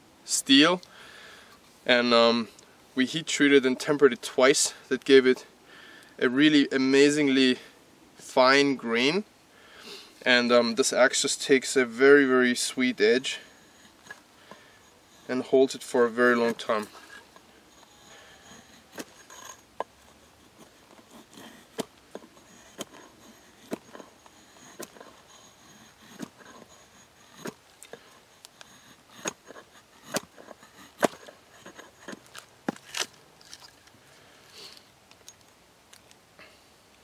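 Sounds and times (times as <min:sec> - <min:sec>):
axe chopping wood: 0:23.6 - 0:23.9, 0:30.1 - 0:30.4, 0:31.0 - 0:31.3.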